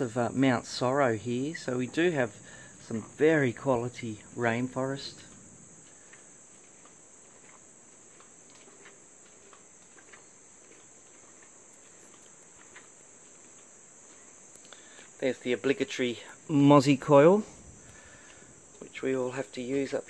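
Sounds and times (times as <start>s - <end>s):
chorus of insects: 0.0s - 20.0s
faint ticks: 5.1s - 15.2s.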